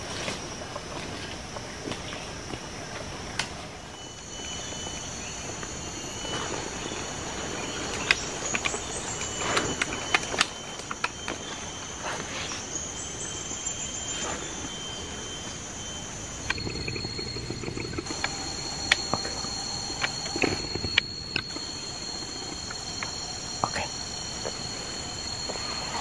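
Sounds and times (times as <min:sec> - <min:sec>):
high-pitched insect drone: 0:00.0 - 0:26.0.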